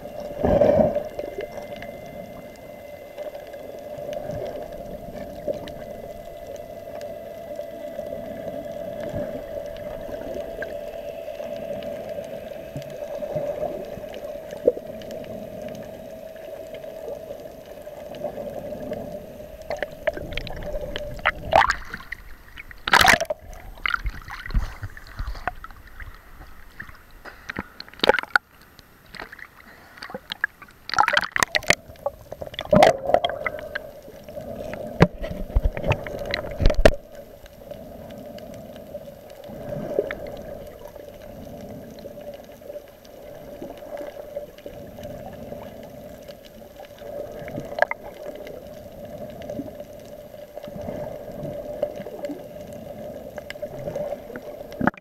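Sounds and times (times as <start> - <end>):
low hum: 0.0 - 55.0
muffled underwater sound: 0.0 - 55.0
water splashing on camera housing: 19.7 - 28.5.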